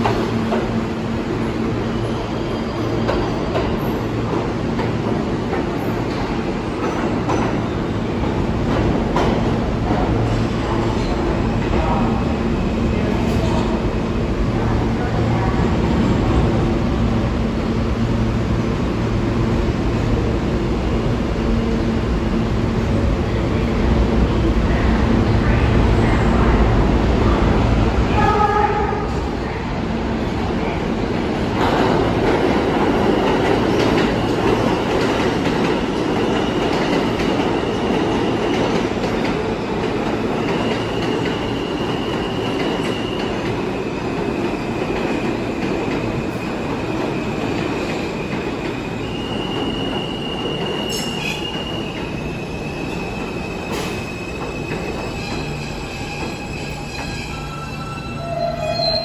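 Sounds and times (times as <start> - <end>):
subway train wheels rumbling: 0.0 - 59.0
high-pitched wheel squeal: 55.0 - 59.0.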